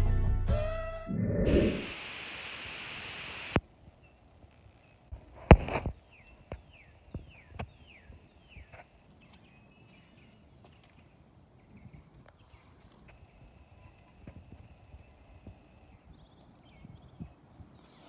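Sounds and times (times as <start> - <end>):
steady hiss: 1.4 - 3.7.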